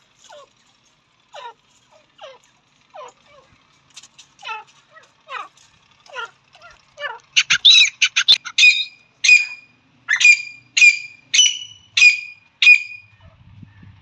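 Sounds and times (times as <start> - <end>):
francolin calling: 4.4 - 13.2.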